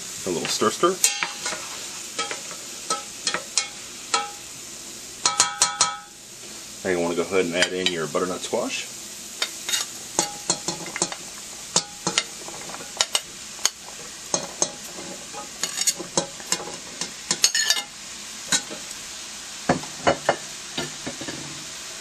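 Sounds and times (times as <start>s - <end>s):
faint sizzle of frying vegetables: 0.0s - 22.0s
food pieces clattering into pot: 9.6s - 17.9s
utensil scraping ceramic plate: 15.1s - 16.0s.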